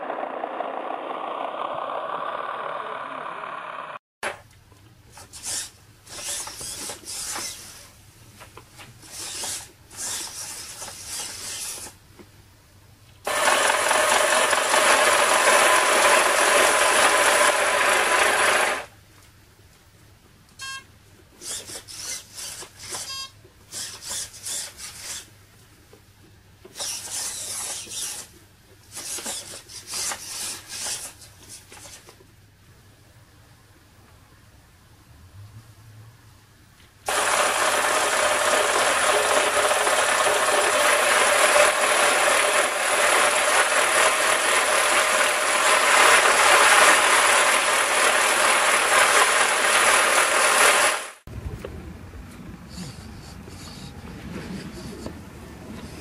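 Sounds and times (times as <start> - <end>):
small electric motors and gears: 5.1 - 8.0, 9.0 - 12.0, 13.3 - 18.9, 21.4 - 25.3, 26.7 - 32.2, 37.1 - 51.3.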